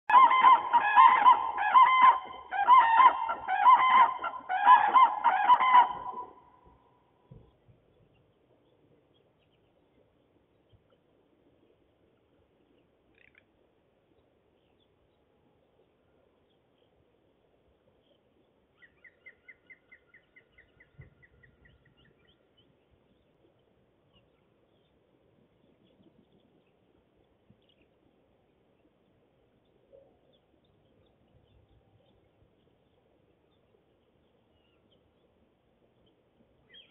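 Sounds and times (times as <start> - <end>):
faint bird call: 0.1 - 7.4.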